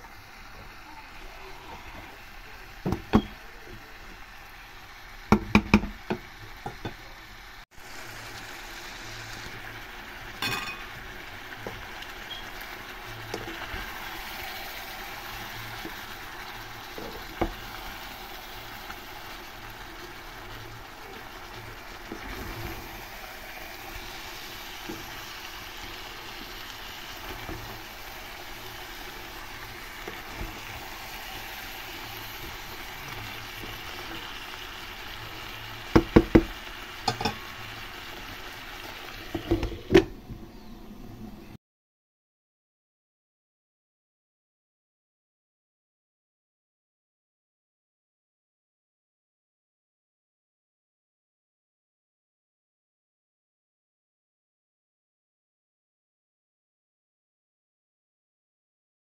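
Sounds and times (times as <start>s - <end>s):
food sizzling in metal pot: 0.0s - 40.9s.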